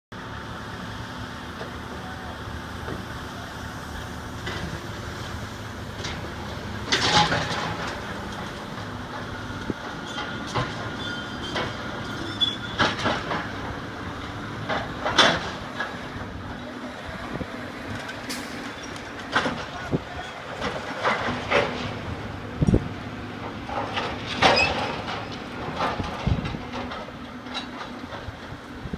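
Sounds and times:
diesel engine drone: 0.1s - 28.9s
metal clanks and scrapes: 6.0s - 9.2s, 9.8s - 13.7s, 17.9s - 22.0s, 23.7s - 28.3s.

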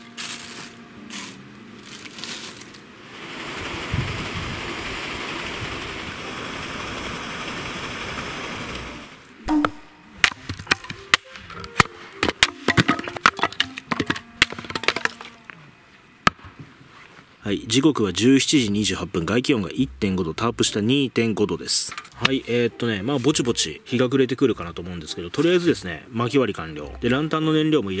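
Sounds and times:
steady rushing noise: 3.0s - 9.2s
hatchet splitting firewood: 9.5s - 15.4s.

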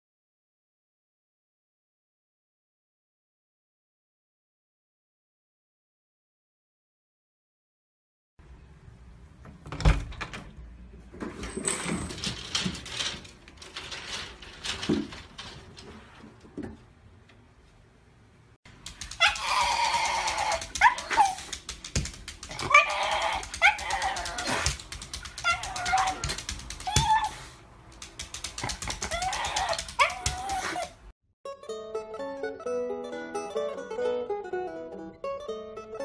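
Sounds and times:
knocks and rustling: 9.4s - 17.5s
dog whining and yipping: 19.1s - 21.6s, 22.5s - 27.6s, 28.9s - 31.0s.

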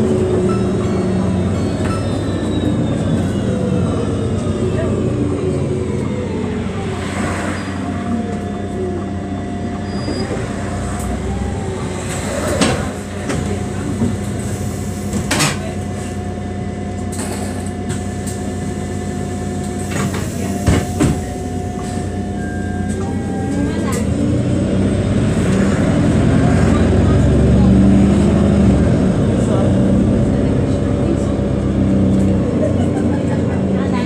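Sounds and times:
bus engine hum with whine: 0.0s - 34.0s
bus knocks and rattles: 11.8s - 34.0s.

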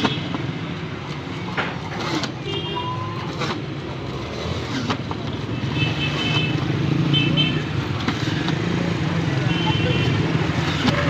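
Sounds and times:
short horn beeps: 2.4s - 3.3s
motorcycle engines running: 3.2s - 11.0s.

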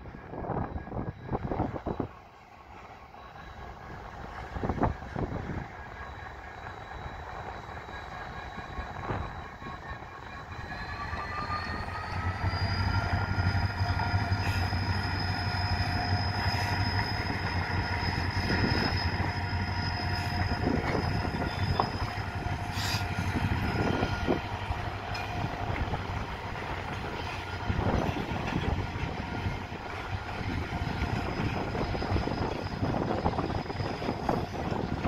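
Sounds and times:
locomotive engine drone: 0.0s - 35.0s.

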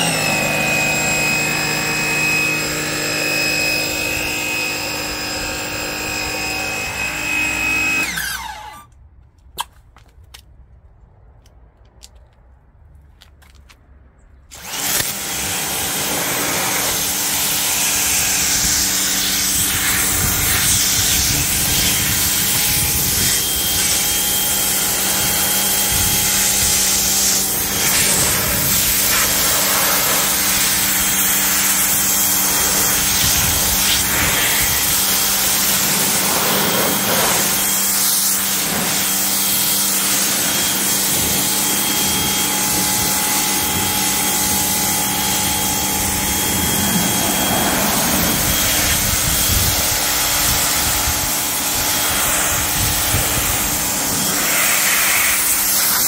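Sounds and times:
pressure washer motor hum: 0.0s - 8.8s, 14.5s - 56.0s
water jet spraying: 14.5s - 56.0s.

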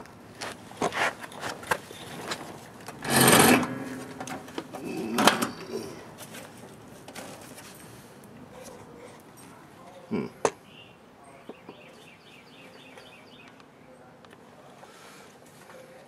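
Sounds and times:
lawn mower knocking and rattling: 3.0s - 5.5s
loud scrape: 3.0s - 5.9s.

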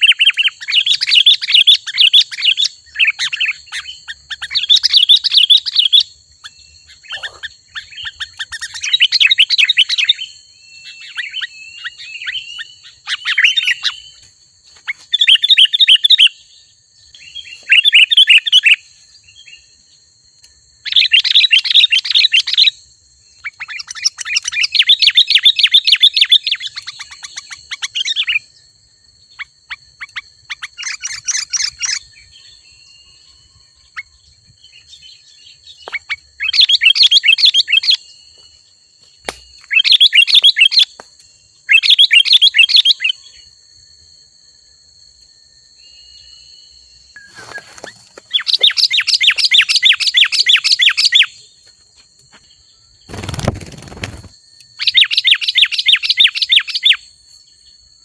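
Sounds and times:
bird chattering calls: 0.0s - 10.2s, 47.2s - 51.3s.

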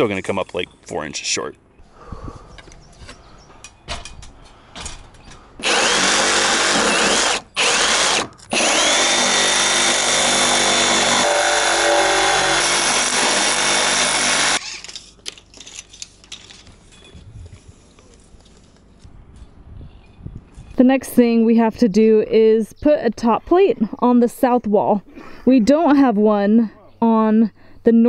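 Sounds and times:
power drill whining: 5.6s - 14.9s.

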